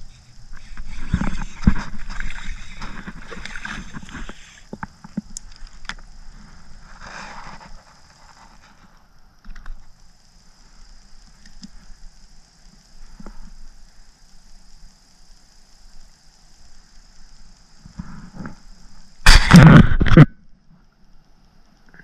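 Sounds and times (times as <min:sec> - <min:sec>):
brief rustle: 0:00.1 - 0:06.0.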